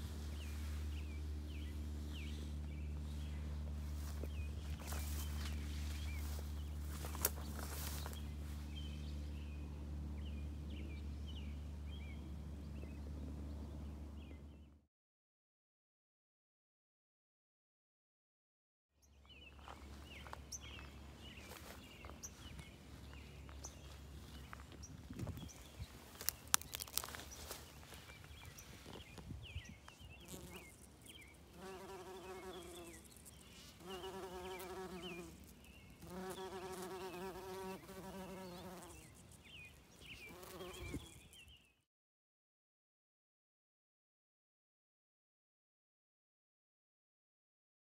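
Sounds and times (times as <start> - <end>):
bumblebee buzzing: 30.1 - 39.3, 40.2 - 41.3.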